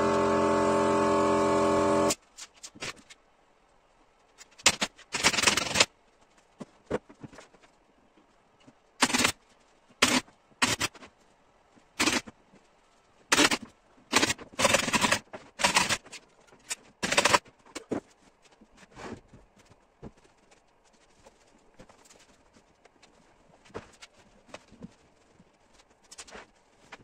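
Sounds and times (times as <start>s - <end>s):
pneumatic staple gun firing: 12.0s - 12.2s.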